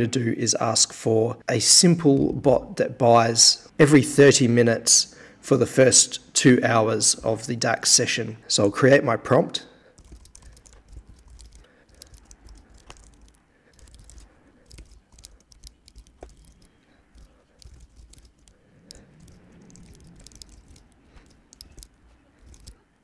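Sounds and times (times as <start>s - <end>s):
keyboard typing: 10.0s - 22.8s.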